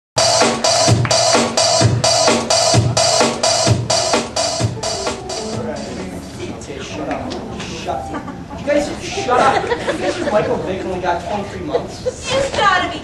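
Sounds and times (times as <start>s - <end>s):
bass drum: 0.2s - 6.2s.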